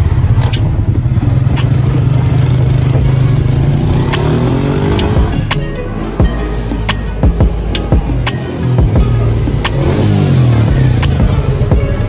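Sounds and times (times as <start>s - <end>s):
small motorcycle engine: 0.0s - 6.2s, 8.6s - 12.0s.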